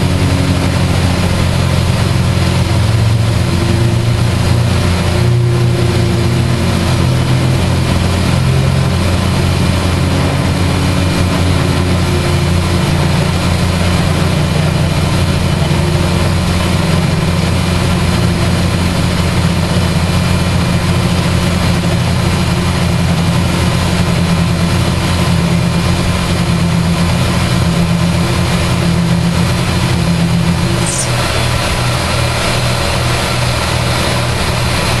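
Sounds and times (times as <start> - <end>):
milling machine spindle humming: 0.0 - 35.0
brief high squeak: 30.8 - 31.2.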